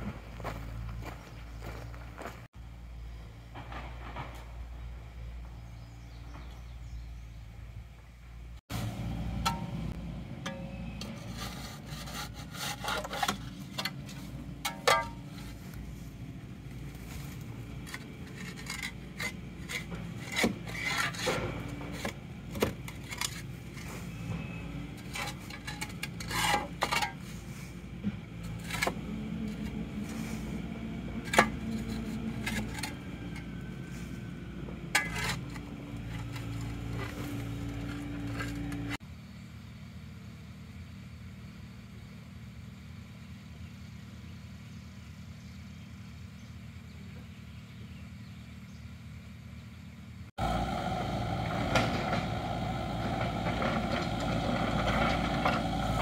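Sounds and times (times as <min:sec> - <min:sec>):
low hum: 0:00.0 - 0:39.7, 0:50.4 - 0:56.0
metal scraping mud from track: 0:08.7 - 0:39.0, 0:50.4 - 0:56.0.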